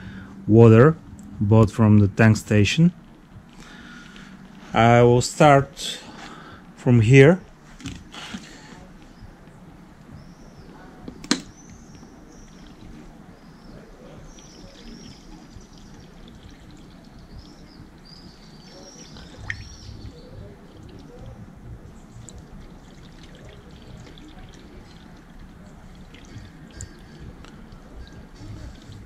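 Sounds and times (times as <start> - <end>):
high chirps: 11.5 - 29.0
water pouring and trickling: 12.2 - 29.0.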